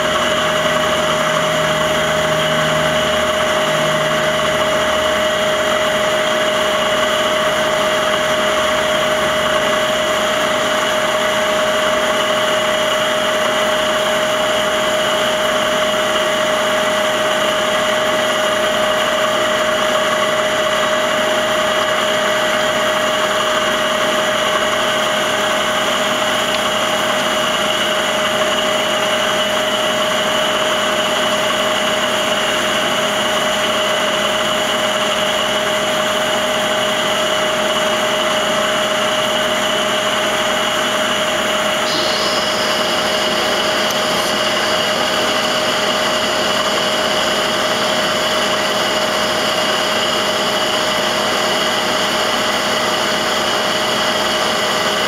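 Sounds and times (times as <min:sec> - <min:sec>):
machine humming and whining: 0:00.0 - 0:55.0.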